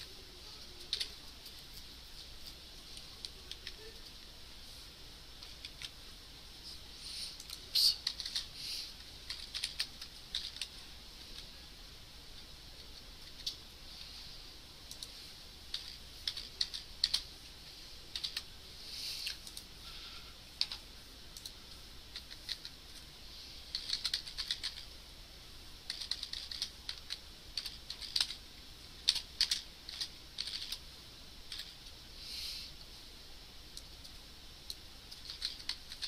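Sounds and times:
keyboard typing: 7.4s - 8.5s, 9.2s - 10.8s, 15.7s - 17.3s, 18.1s - 18.5s, 21.4s - 22.8s, 23.7s - 24.9s, 25.9s - 28.4s, 29.0s - 30.8s, 35.1s - 36.0s.

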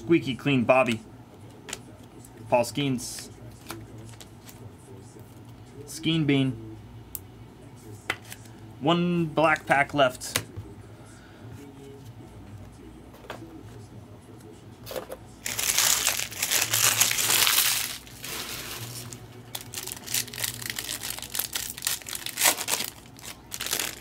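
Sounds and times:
wrapper tearing and crinkling: 15.4s - 24.0s.

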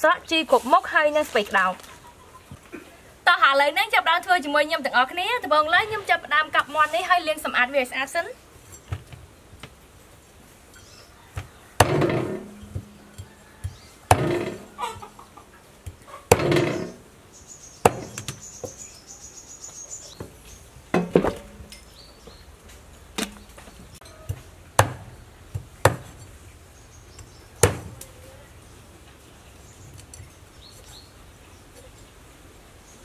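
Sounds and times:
cleaver chopping on wooden board: 11.4s - 13.0s, 13.6s - 14.8s, 16.3s - 17.0s, 17.8s - 18.4s, 24.3s - 26.2s, 27.6s - 28.0s.

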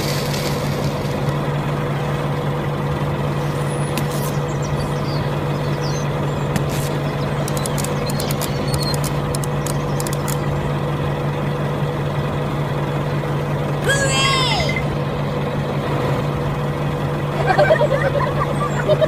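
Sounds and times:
tractor engine idling: 0.0s - 19.0s
light clicks: 7.4s - 10.4s.

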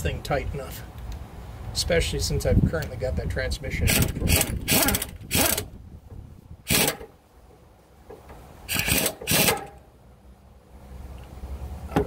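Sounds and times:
air impact wrench hammering: 3.9s - 5.7s, 6.7s - 7.1s, 8.7s - 9.8s.

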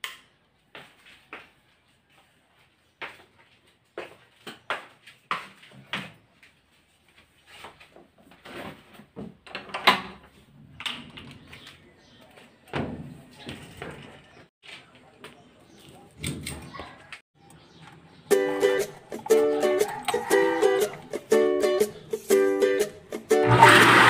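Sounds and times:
footsteps: 0.7s - 8.0s.

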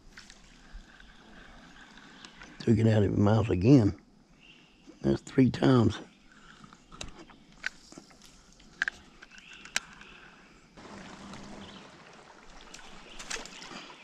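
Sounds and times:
water rushing along kayak hull: 10.8s - 14.0s.

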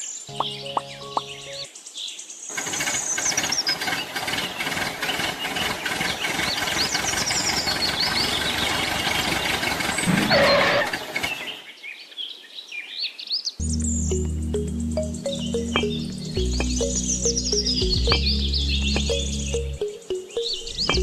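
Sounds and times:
birds chirping: 0.0s - 21.0s
tractor engine running: 2.5s - 11.4s, 13.6s - 19.8s.

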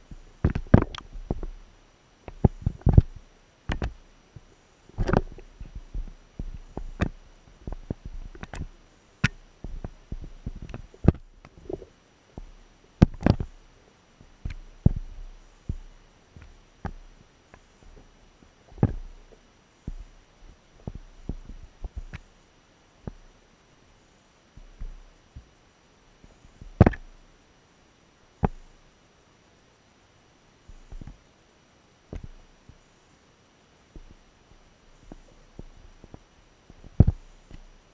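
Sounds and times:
muffled taps on camera housing: 0.4s - 1.5s, 3.7s - 4.0s, 5.0s - 13.5s, 26.6s - 27.1s, 36.8s - 37.6s.

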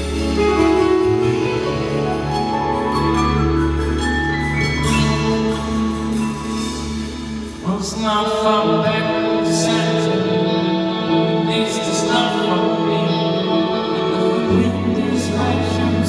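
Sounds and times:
soft rock band playing: 0.0s - 16.0s
man singing: 7.5s - 16.0s.

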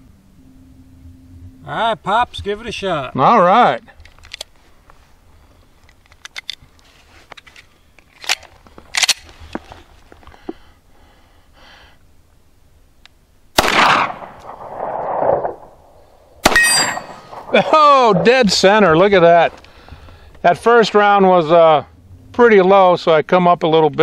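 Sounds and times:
magazine clicking into pistol: 8.1s - 9.3s
pistol shot with echo: 13.6s - 15.6s, 16.4s - 17.6s.

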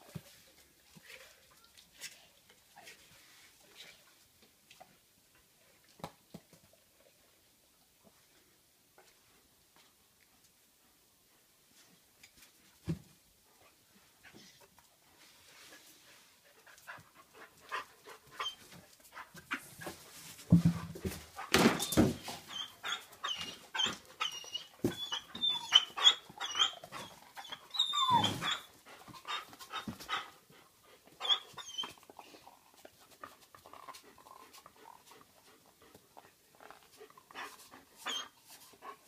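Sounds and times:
dogs whimpering: 21.8s - 30.3s, 31.2s - 32.2s, 38.0s - 38.4s.

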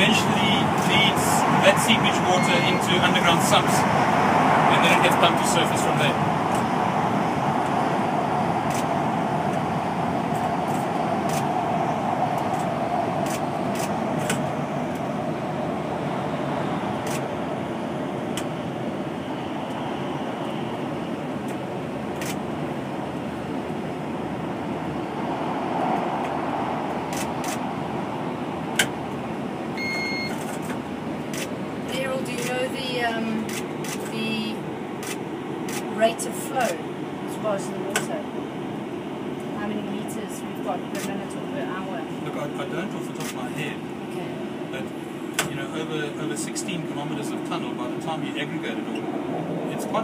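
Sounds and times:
electric train rumble and hiss: 0.0s - 50.0s
short beep: 2.2s - 2.9s, 29.8s - 30.4s.

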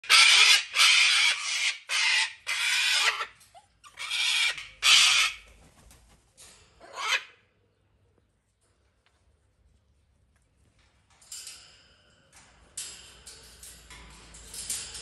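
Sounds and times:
parrots squawking: 0.0s - 5.5s, 6.8s - 7.4s.

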